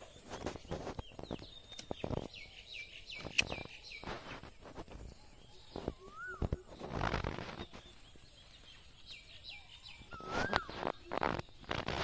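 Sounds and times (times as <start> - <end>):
bird whistling falling notes: 5.7 - 8.0, 9.8 - 11.6.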